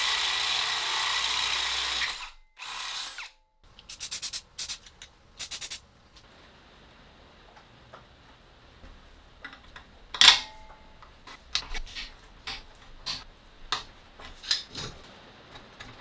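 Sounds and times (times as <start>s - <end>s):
wrench clinking on bolt: 9.4s - 14.7s.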